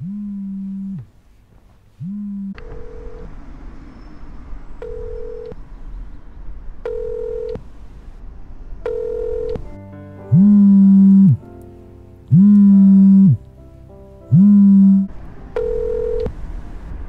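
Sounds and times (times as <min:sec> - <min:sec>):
telephone ringback tone: 0:02.3 - 0:03.3, 0:04.8 - 0:05.6, 0:06.9 - 0:07.6, 0:08.9 - 0:09.6, 0:15.6 - 0:16.3
mobile phone ringing with buzz: 0:04.8 - 0:05.6, 0:06.9 - 0:07.6, 0:08.9 - 0:09.6, 0:14.4 - 0:16.3.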